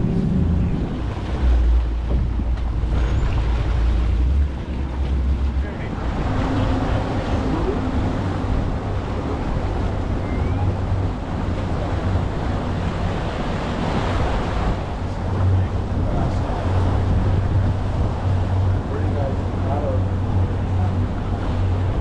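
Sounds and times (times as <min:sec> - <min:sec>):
outboard motors humming: 0:00.0 - 0:22.0
water washing along hull: 0:00.0 - 0:22.0
wind buffeting microphone: 0:00.0 - 0:22.0.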